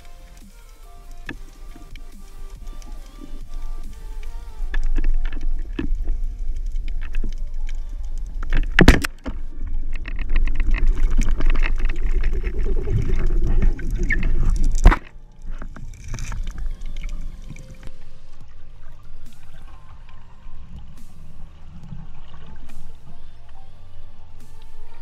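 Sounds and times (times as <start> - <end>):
rumbling gurgling water: 0.0 - 25.0
speargun firing underwater: 8.7 - 9.4, 14.0 - 15.3.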